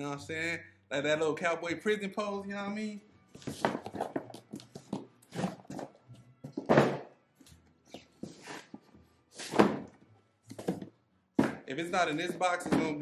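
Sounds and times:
rustling cardboard and parts: 3.4s - 7.1s.

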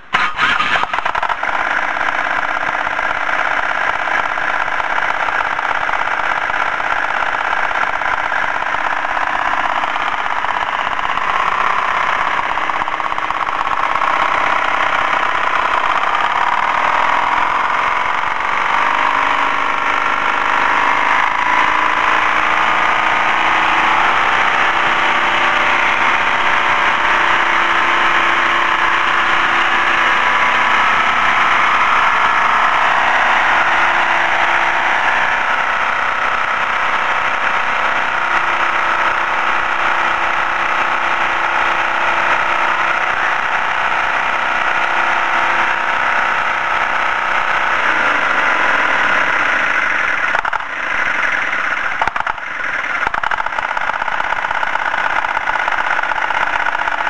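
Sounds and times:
diesel engine running: 0.0s - 57.0s
electric starter cranking: 0.0s - 57.0s.

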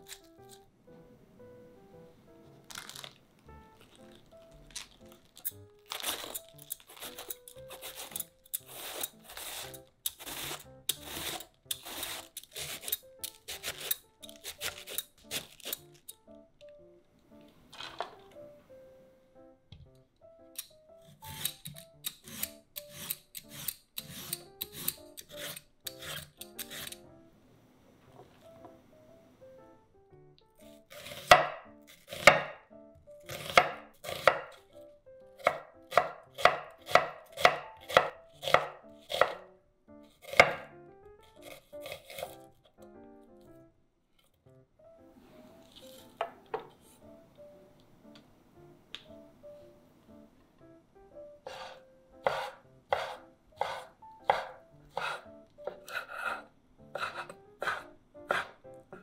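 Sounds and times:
knife chopping on wooden board: 31.0s - 32.6s, 33.3s - 34.6s, 35.4s - 39.4s, 40.2s - 40.7s, 51.5s - 59.0s.

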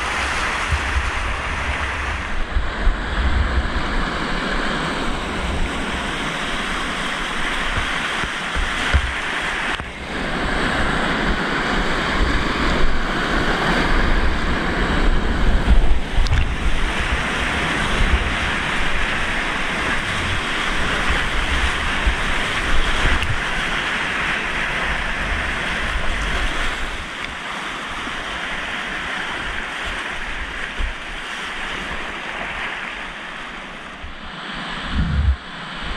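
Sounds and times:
whitewater rapids rushing: 0.0s - 35.9s
wind buffeting microphone: 0.0s - 35.9s
low thumps of water: 7.5s - 10.0s.

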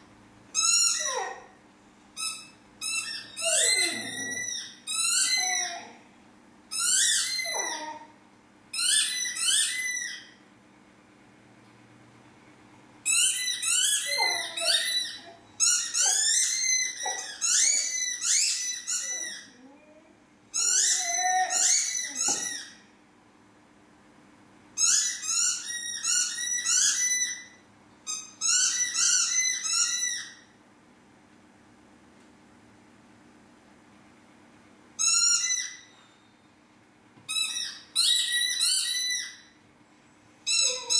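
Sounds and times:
squeaky dog toy squeaking: 0.5s - 1.5s, 2.2s - 6.0s, 6.7s - 8.1s, 8.7s - 10.4s, 13.0s - 19.6s, 20.5s - 22.8s, 24.8s - 30.5s, 35.0s - 35.9s, 37.3s - 39.6s, 40.5s - 40.9s.

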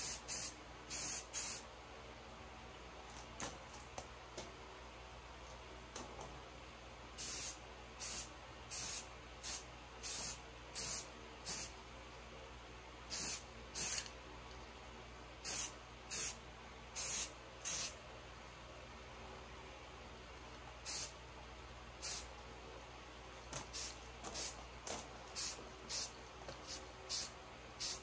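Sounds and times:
spray paint can hissing: 0.0s - 1.6s, 7.2s - 11.7s, 13.1s - 14.1s, 15.4s - 16.4s, 17.0s - 17.9s, 20.9s - 21.1s, 22.0s - 22.3s, 23.7s - 24.6s, 25.4s - 28.0s.

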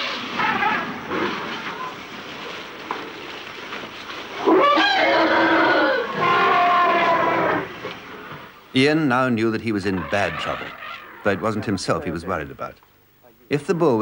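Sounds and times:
elephants trumpeting: 0.0s - 2.8s, 4.3s - 8.5s, 9.8s - 11.8s.

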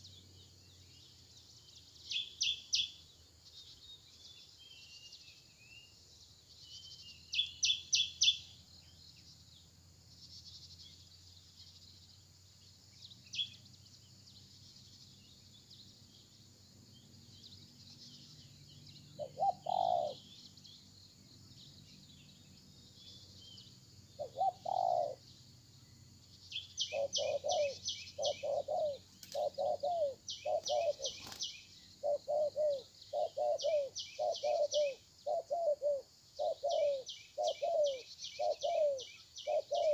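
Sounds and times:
small birds chirping: 0.0s - 39.9s
doves cooing: 19.2s - 20.3s, 24.2s - 25.2s, 26.9s - 39.9s.

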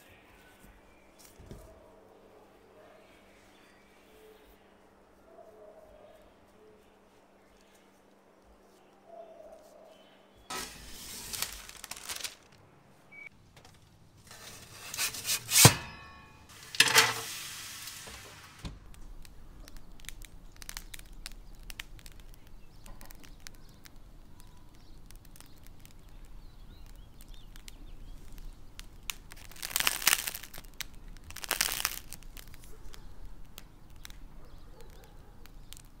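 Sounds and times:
bread crust crackling: 6.1s - 9.0s, 9.6s - 36.0s
rustling and scraping: 9.6s - 12.7s, 13.5s - 24.0s, 26.8s - 36.0s.

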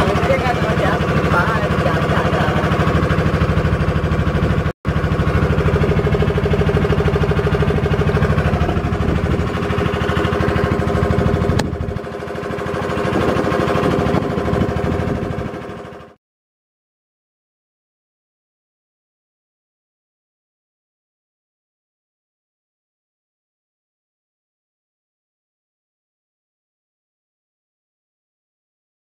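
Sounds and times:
boat engine chugging: 0.0s - 16.2s.

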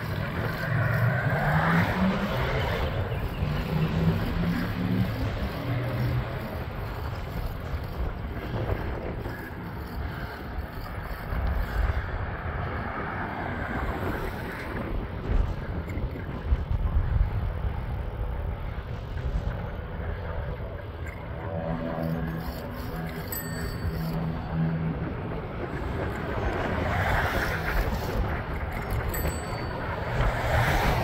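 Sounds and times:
vehicle motor hum: 0.0s - 10.3s
wind noise on microphone: 0.0s - 31.0s.

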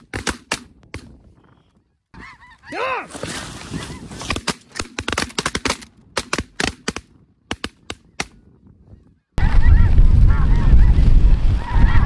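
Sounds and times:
geese honking: 2.2s - 4.3s.

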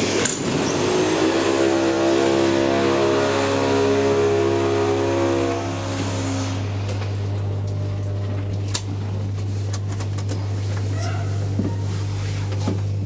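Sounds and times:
low electrical hum: 5.5s - 13.0s.

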